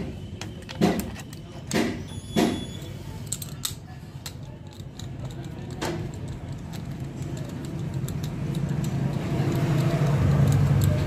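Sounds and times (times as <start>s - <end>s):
ratchet wrench clicking: 3.2s - 11.0s
engine humming: 5.1s - 11.0s.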